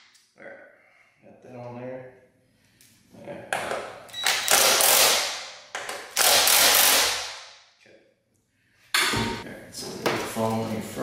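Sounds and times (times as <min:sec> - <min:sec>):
cordless drill driving screws: 0:06.2 - 0:07.2.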